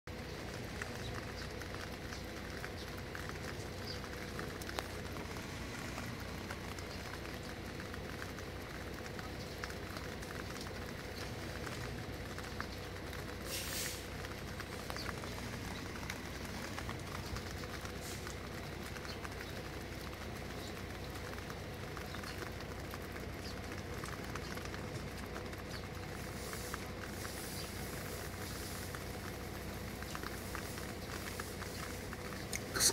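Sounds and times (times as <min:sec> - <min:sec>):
faint ticks: 0:00.1 - 0:32.9
steady background noise: 0:00.1 - 0:32.9
brief hiss: 0:13.5 - 0:14.0.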